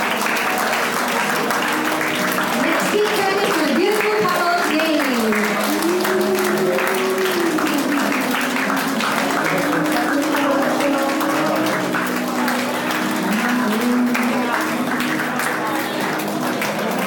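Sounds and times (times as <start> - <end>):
crowd clapping and cheering: 0.0 - 17.0.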